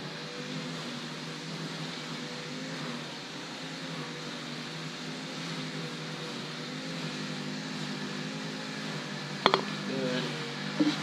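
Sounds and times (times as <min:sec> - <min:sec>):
machine hum with hiss: 0:00.0 - 0:11.0.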